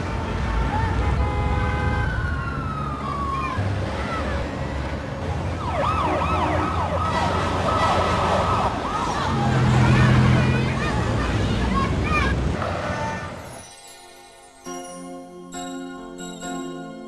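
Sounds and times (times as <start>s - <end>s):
siren-like wailing tone: 5.6s - 8.7s.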